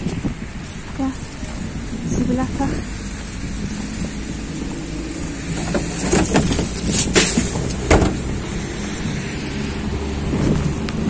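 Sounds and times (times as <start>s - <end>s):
footsteps crunching on snow: 0.0s - 11.0s
low rumble of street traffic: 0.0s - 11.0s.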